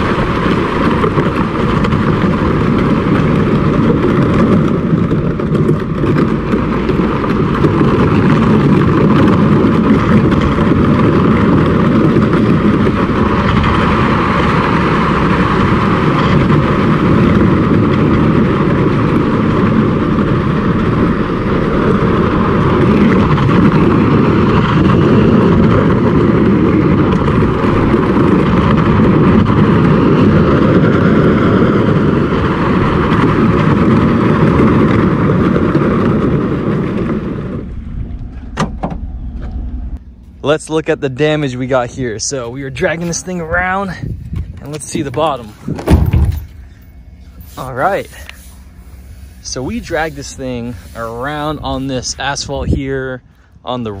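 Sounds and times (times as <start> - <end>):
truck road noise: 0.0 - 54.0
plastic kayak scraping on asphalt: 42.2 - 52.4.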